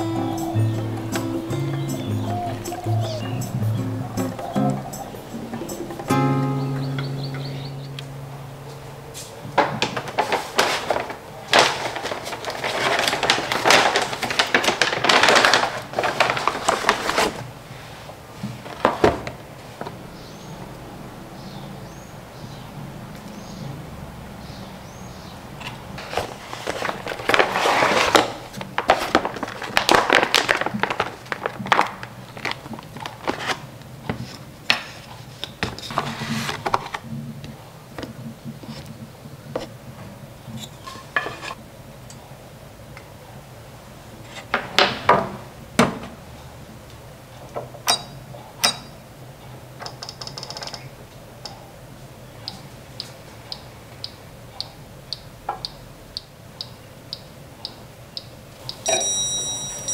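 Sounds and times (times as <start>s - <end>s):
cardboard carton rustling: 9.8s - 17.7s, 26.0s - 37.2s
plastic bag rustling: 9.8s - 20.1s, 25.9s - 37.4s.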